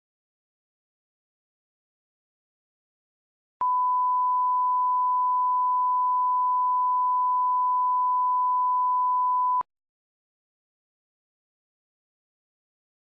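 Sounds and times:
sine-wave test tone: 3.6s - 9.7s.

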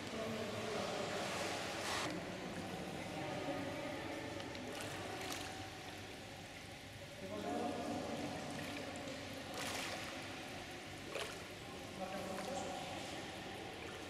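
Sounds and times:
water bubbling and splashing: 8.2s - 14.0s.

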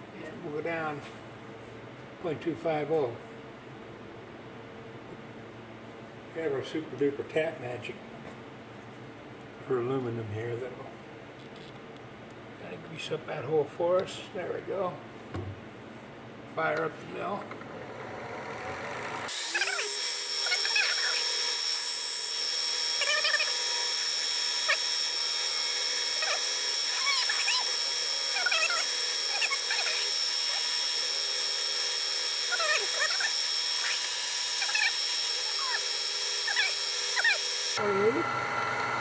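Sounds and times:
high-pitched motor whine: 17.7s - 39.0s
drill squeaking as it bites: 19.3s - 37.8s.

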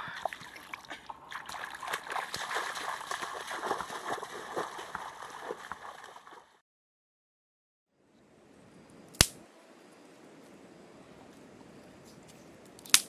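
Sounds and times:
feet splashing through water: 0.0s - 6.6s.

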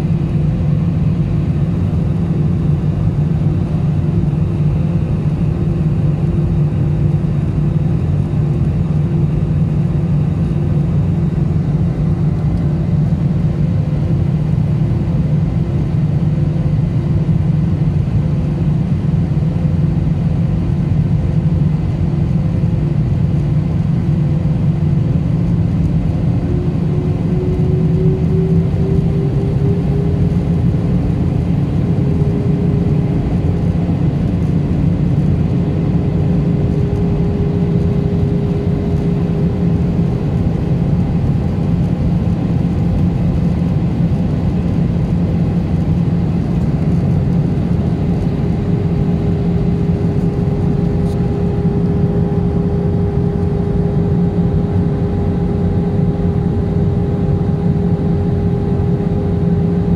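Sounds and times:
jet engine and airflow rumble: 0.0s - 59.9s
engine tone rising: 26.4s - 34.6s.

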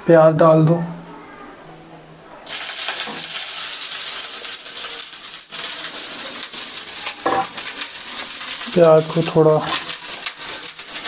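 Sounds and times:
onions sizzling in hot oil: 2.5s - 11.0s.

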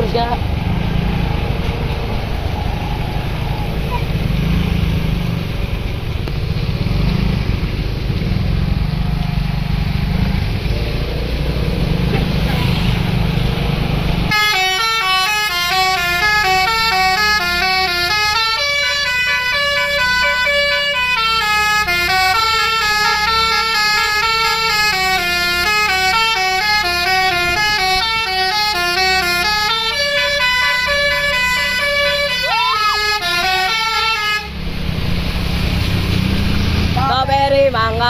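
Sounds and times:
bus engine running: 0.0s - 38.0s
musical bus horn melody: 14.3s - 34.6s.

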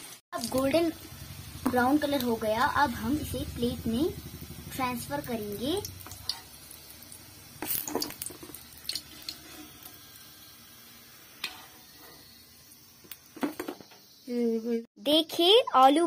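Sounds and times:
hot oil sizzling: 0.0s - 14.9s
metal spoon scraping a wok: 6.0s - 6.6s, 11.4s - 12.3s.

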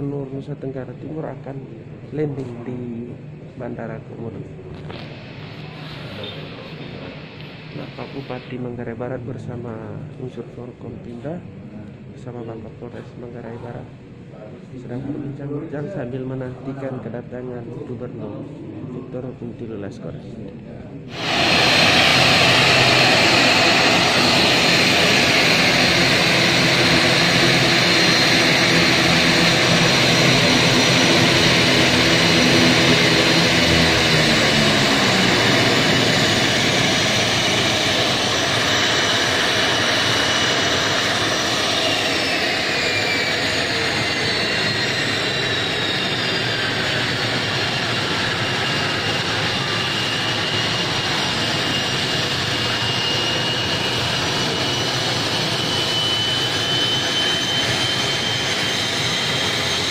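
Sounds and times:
turbine whine sliding downward: 4.8s - 8.7s, 21.1s - 59.9s
propeller hum: 4.9s - 8.5s, 21.1s - 59.9s.

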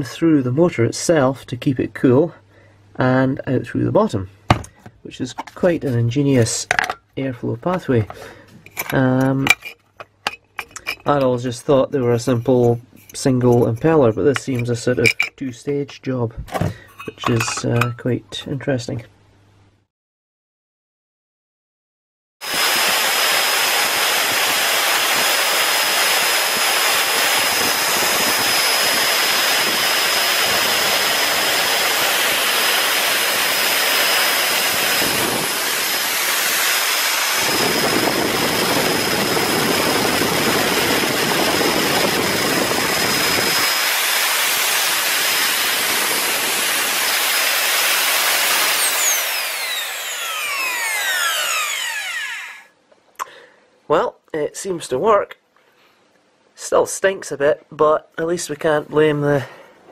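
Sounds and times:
motor winding down: 22.4s - 52.7s
vacuum cleaner motor running: 22.4s - 52.7s.

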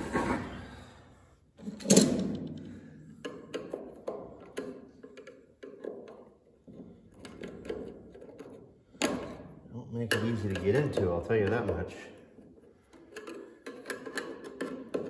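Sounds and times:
metal tool clicking on can rim: 10.0s - 12.1s.

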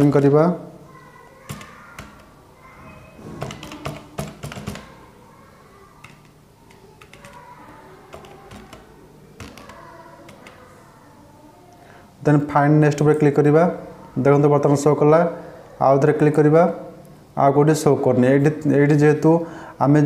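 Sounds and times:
computer keyboard typing: 1.4s - 2.4s, 3.2s - 5.1s, 6.0s - 10.8s.

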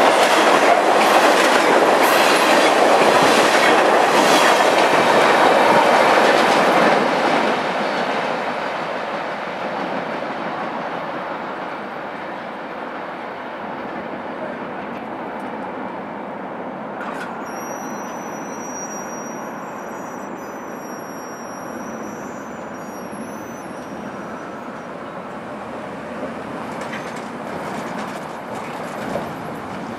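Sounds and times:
train running on tracks: 0.0s - 29.9s
thin high squeal: 17.2s - 24.8s.

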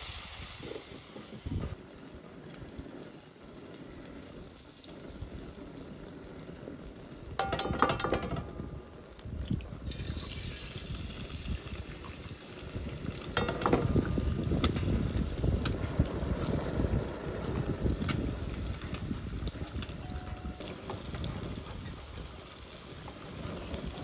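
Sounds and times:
fat sizzling: 0.0s - 24.0s
egg cracking on skillet rim: 7.3s - 11.7s, 13.0s - 15.8s.

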